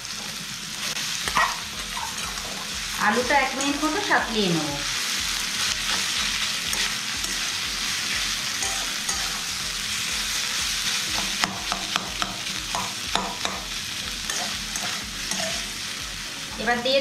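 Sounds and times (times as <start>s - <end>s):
potato sizzling in hot oil: 0.0s - 17.0s
metal spatula scraping a pan: 5.0s - 15.8s.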